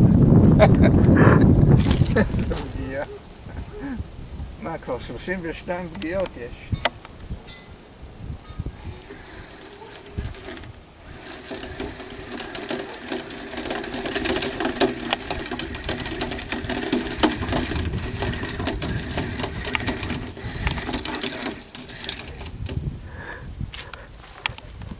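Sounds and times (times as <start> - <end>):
gravel crunching under wheels: 0.0 - 7.4, 8.4 - 24.9
toy car motor whirring: 8.7 - 23.0.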